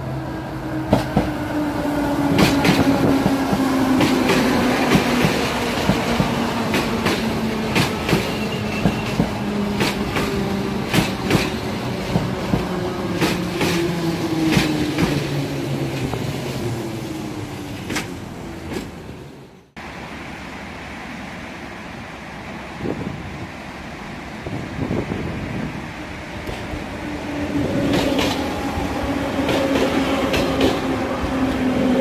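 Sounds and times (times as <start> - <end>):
train motors humming: 0.0 - 32.0
train wheels clacking: 2.2 - 15.3, 27.8 - 31.7
wind on microphone: 24.4 - 29.5.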